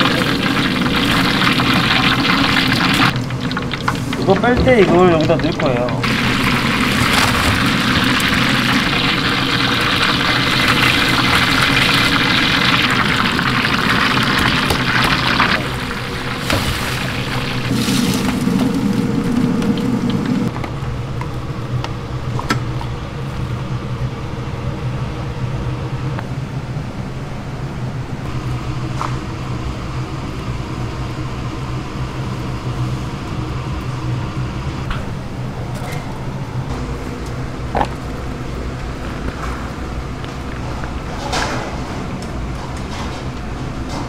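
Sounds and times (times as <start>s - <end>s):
low mechanical hum: 0.0s - 44.0s
fried pieces tumbling into basket: 3.2s - 12.6s, 16.4s - 19.0s.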